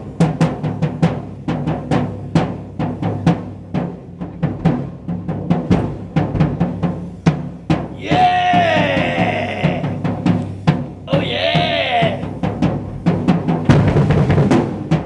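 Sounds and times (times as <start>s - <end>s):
drum kit solo: 0.0s - 15.0s
man yelling: 8.0s - 10.0s, 11.1s - 12.3s.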